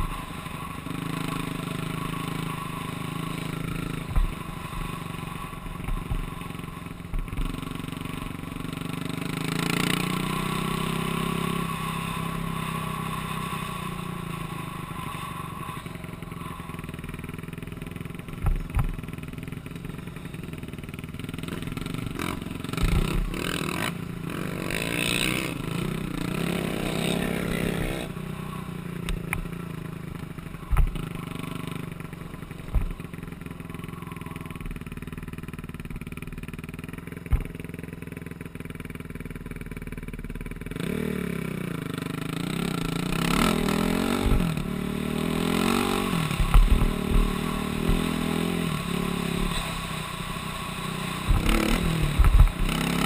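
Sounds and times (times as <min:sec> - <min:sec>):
off-road vehicle engine running: 0:00.0 - 0:53.0
thumps and clatter from bumps: 0:04.0 - 0:04.9, 0:05.7 - 0:07.9, 0:18.2 - 0:19.3, 0:21.5 - 0:23.9, 0:30.6 - 0:33.6, 0:37.2 - 0:37.8, 0:43.5 - 0:49.8, 0:51.2 - 0:53.0.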